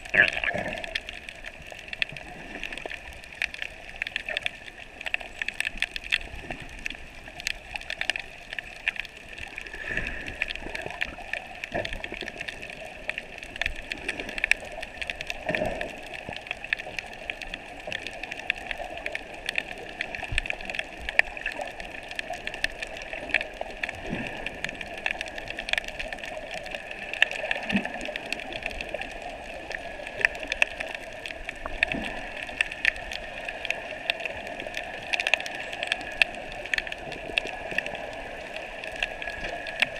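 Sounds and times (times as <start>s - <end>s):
crackling clicks: 0.0s - 39.9s
muffled underwater hiss: 0.0s - 39.9s.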